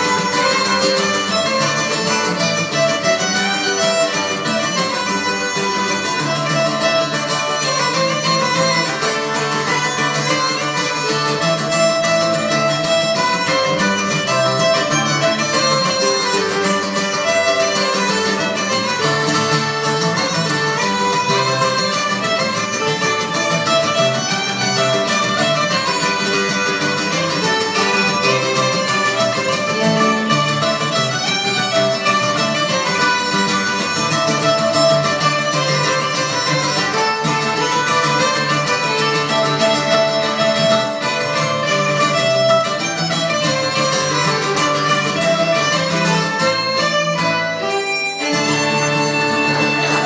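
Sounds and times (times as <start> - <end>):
banjo and plucked strings: 0.0 - 50.0
fiddle playing tune: 0.0 - 50.0
traditional band playing live: 0.0 - 50.0.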